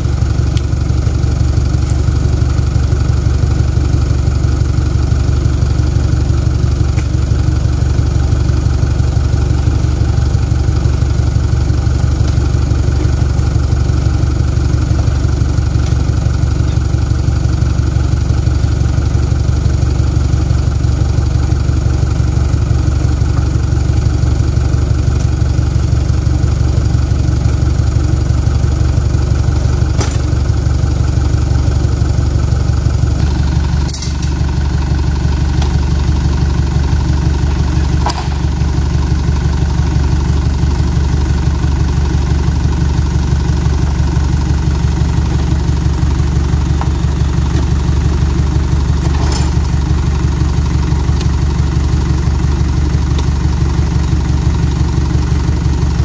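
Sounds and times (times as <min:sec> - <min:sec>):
lorry engine idling: 0:00.0 - 0:56.0.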